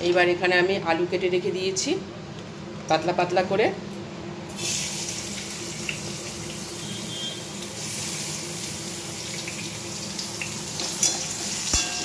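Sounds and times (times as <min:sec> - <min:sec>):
hot oil sizzling: 0:04.5 - 0:12.0.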